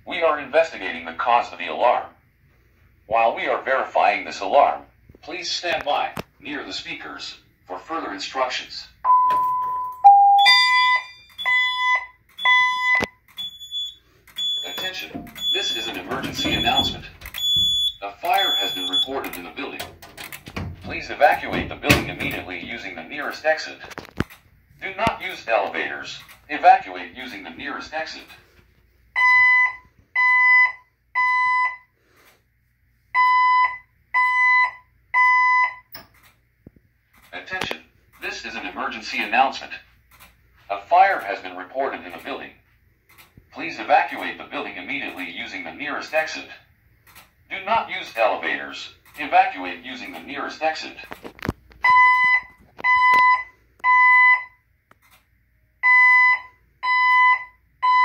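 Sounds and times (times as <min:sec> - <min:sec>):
fire alarm evacuation beeps: 0:09.0 - 0:19.3, 0:29.2 - 0:32.0, 0:33.1 - 0:36.0, 0:51.8 - 0:54.6, 0:55.8 - 0:58.0
voice messages: 0:14.4 - 0:24.0, 0:24.8 - 0:28.4.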